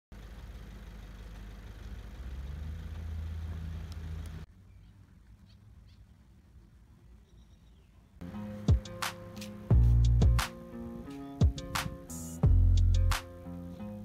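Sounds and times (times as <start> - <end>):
low engine-like hum: 0.2 - 7.3.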